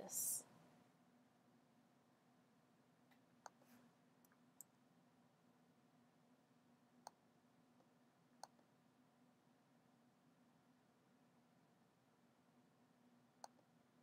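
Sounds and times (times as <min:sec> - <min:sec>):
faint room hum: 0:00.0 - 0:14.0
computer mouse clicks: 0:08.4 - 0:08.6, 0:13.4 - 0:13.7.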